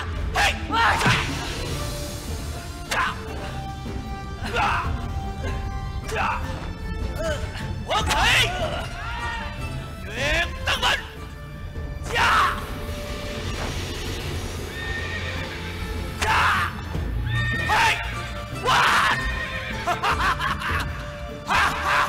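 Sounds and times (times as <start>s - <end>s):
dramatic battle music: 0.0s - 22.0s
horse neighing: 14.7s - 15.8s.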